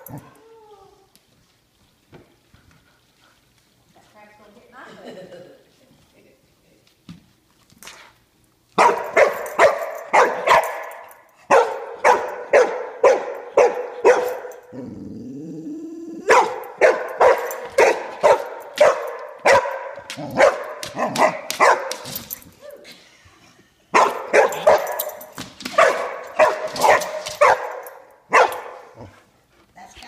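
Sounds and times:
dog barking: 8.8 - 14.7, 16.3 - 22.0, 24.0 - 29.0.

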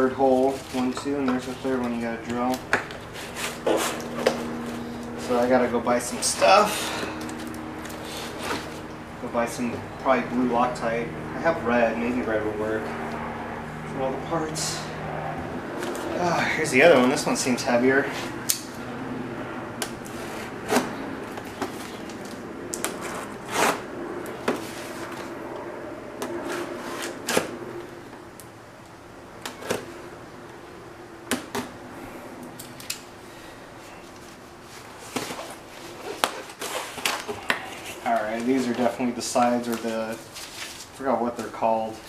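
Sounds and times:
blade cutting tape on box: 6.6 - 8.8, 19.8 - 23.9, 26.3 - 27.5
cardboard rustling: 34.0 - 41.6.

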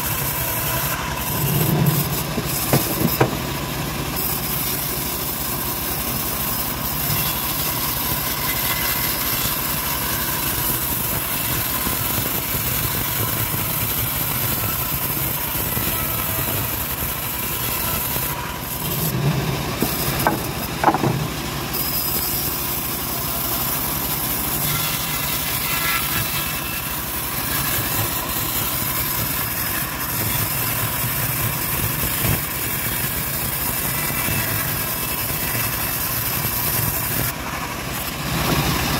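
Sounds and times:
bandsaw mill droning: 0.0 - 38.9
knocks: 2.4 - 3.4, 19.8 - 21.3
brief squeal: 21.7 - 22.6.

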